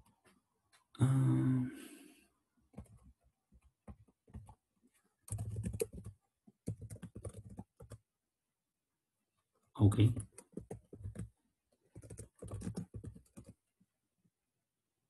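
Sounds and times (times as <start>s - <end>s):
keyboard typing: 2.8s - 4.6s, 5.2s - 8.0s, 10.0s - 13.6s.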